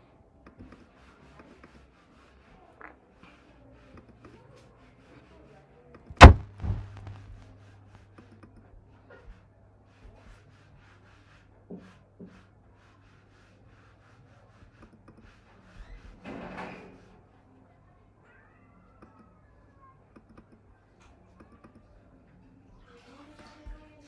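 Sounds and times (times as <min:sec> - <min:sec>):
sharp thump: 0:06.2 - 0:07.2
low steady hum: 0:06.2 - 0:07.5
faint clicks and taps: 0:08.1 - 0:08.8, 0:20.1 - 0:22.0.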